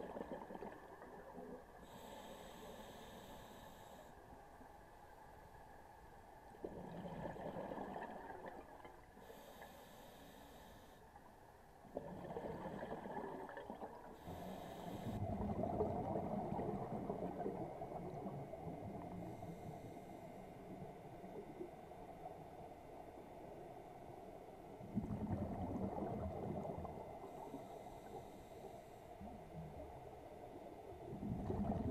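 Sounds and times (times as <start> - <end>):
diver exhaling bubbles: 12.0 - 14.0, 31.1 - 31.9.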